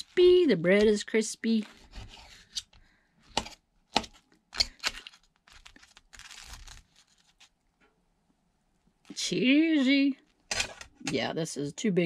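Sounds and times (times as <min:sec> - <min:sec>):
knife cutting crispy bread crust: 0:03.3 - 0:07.4.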